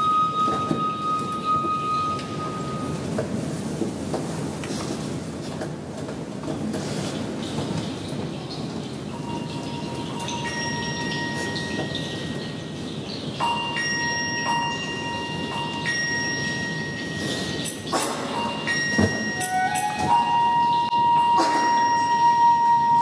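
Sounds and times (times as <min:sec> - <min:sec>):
tubular chimes ringing: 0:00.0 - 0:03.1, 0:09.1 - 0:23.0.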